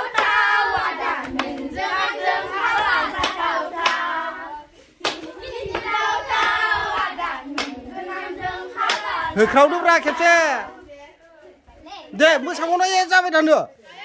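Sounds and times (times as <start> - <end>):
children singing together: 0.0 - 10.2
sharp claps: 1.2 - 1.7, 3.2 - 4.1, 5.0 - 7.8, 8.8 - 9.1.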